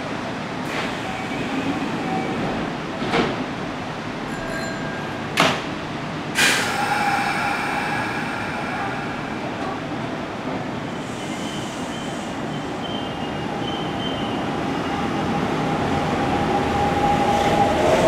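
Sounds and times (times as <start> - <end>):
train held tones: 6.4 - 9.9.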